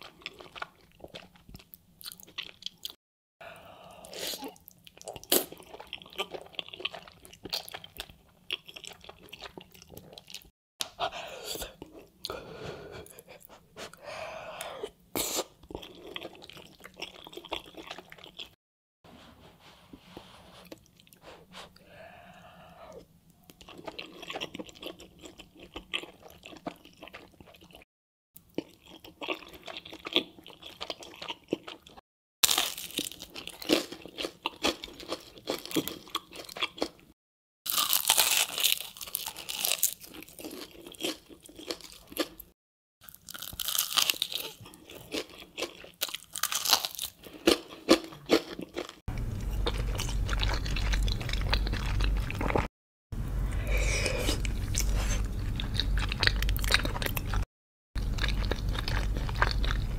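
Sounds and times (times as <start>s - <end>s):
chewing soft food: 0.0s - 3.0s, 3.6s - 18.6s, 20.5s - 37.1s, 37.7s - 52.7s, 53.4s - 59.9s
crunching bites of fried chicken: 32.4s - 36.9s, 37.7s - 42.4s, 43.0s - 49.0s.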